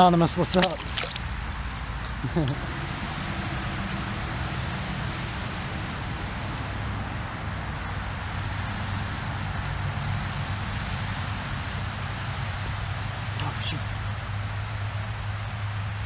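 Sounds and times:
flowing water: 0:00.2 - 0:05.0.

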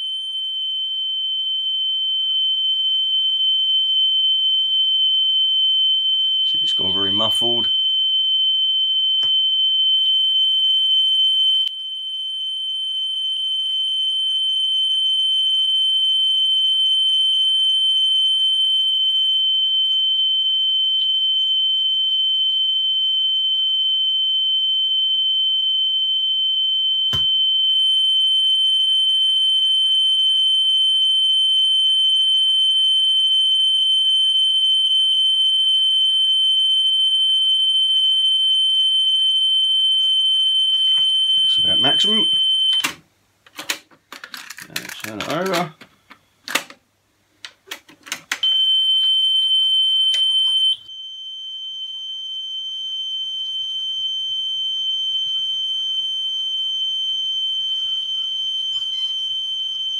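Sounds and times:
steady test tone: 0:06.5 - 0:07.7, 0:40.8 - 0:42.8.

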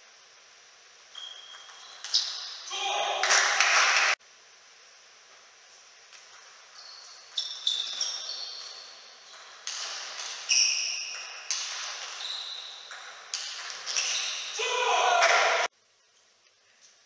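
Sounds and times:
table tennis ball hitting rackets: 0:09.2 - 0:14.6.

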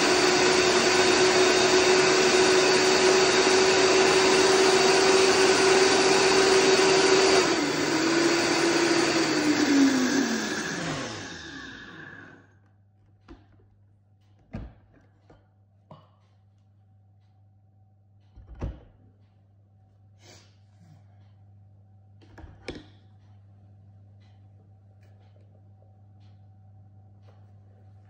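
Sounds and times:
blender motor spinning down: 0:00.0 - 0:12.5.

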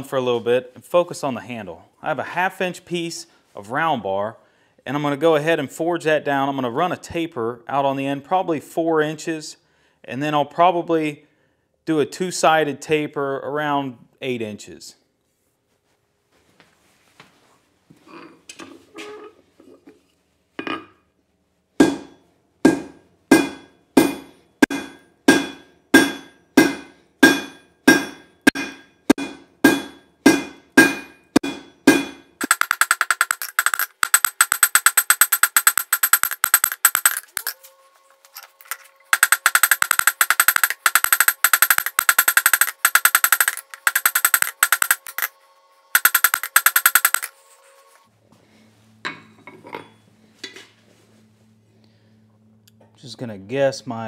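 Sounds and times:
hammer striking steel on anvil: 0:21.8 - 0:32.8.

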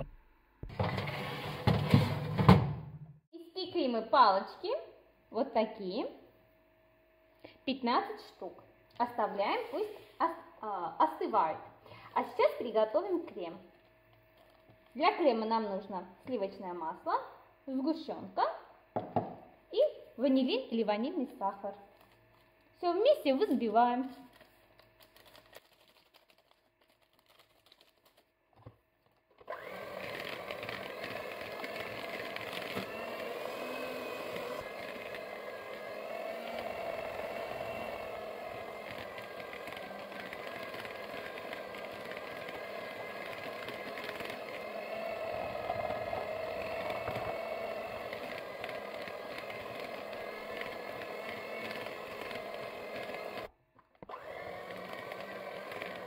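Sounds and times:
electric hand mixer running: 0:29.4 - 0:56.0.

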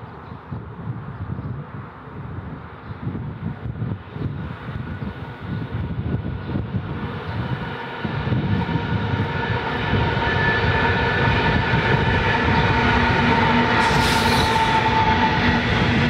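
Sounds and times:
diesel locomotive engines: 0:00.0 - 0:16.0
train wheels rolling on rails: 0:04.0 - 0:16.0
brief hiss: 0:13.8 - 0:14.7.

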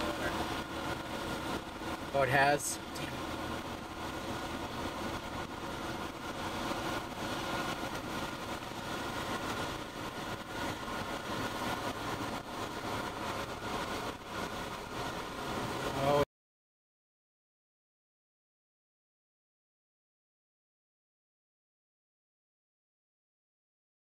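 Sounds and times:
car engine hum: 0:00.0 - 0:16.2
road and wind noise: 0:00.0 - 0:16.3.

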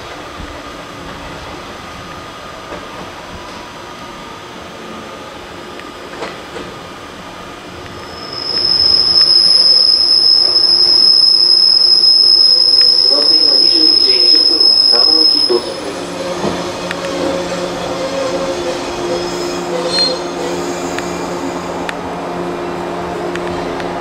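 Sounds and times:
train rumbling and humming: 0:00.0 - 0:24.0
train wheels squealing: 0:08.0 - 0:21.7.

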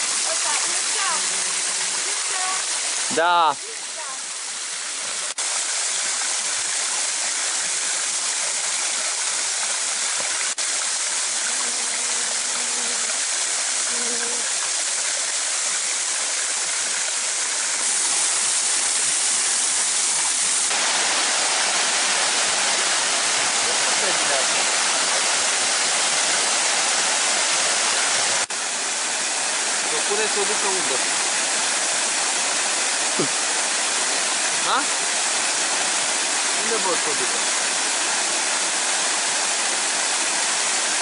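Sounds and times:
waterfall rushing and splashing: 0:00.0 - 0:41.0.

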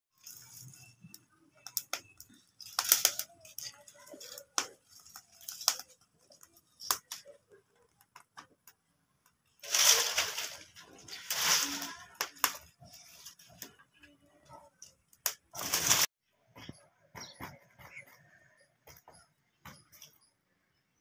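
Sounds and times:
crackling firewood: 0:00.1 - 0:16.2.

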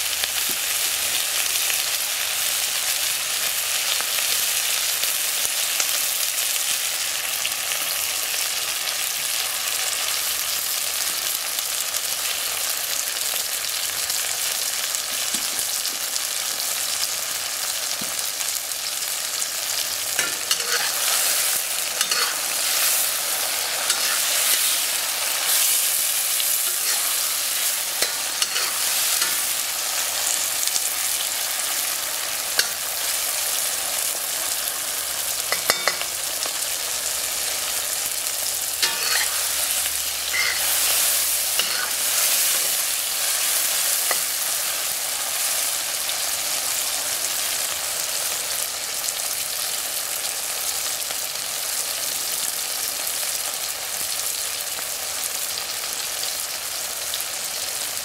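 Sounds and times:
food sizzling in hot oil: 0:00.0 - 0:58.0
metal spatula scraping a wok: 0:20.1 - 0:29.7, 0:38.8 - 0:44.8.

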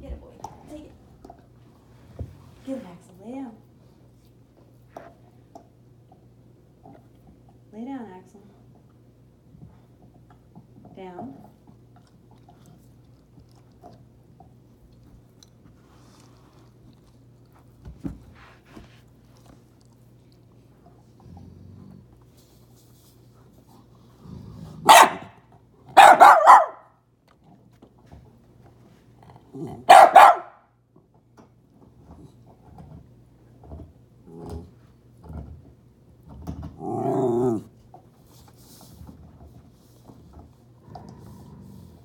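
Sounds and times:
dog barking sharply: 0:24.9 - 0:25.4, 0:26.0 - 0:26.9, 0:29.9 - 0:30.6
dog grumbling low: 0:29.5 - 0:29.8, 0:36.7 - 0:37.7, 0:40.8 - 0:42.0.

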